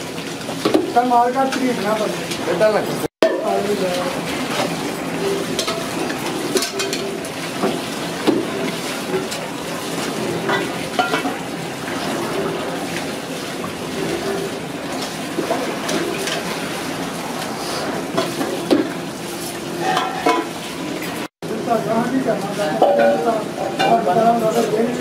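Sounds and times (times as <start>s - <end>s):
water splashing and sloshing: 0.0s - 25.0s
metal pots clinking: 3.2s - 11.6s, 19.7s - 21.0s, 22.6s - 24.6s.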